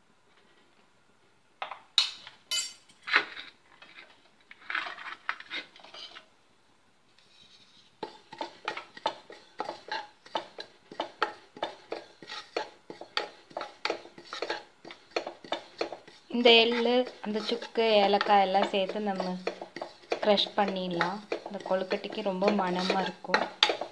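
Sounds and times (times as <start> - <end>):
spatula clinking on pan: 2.5 - 2.9
spatula scraping pan: 3.1 - 6.3, 7.2 - 23.9.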